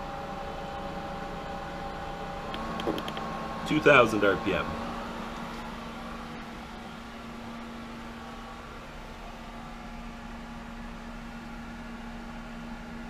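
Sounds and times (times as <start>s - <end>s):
pool pump humming: 0.0s - 13.0s.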